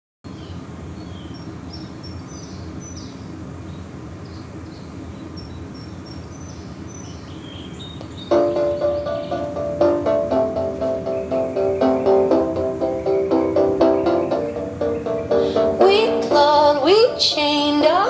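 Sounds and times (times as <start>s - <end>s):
small birds chirping: 0.3s - 18.0s
loud music: 8.3s - 18.0s.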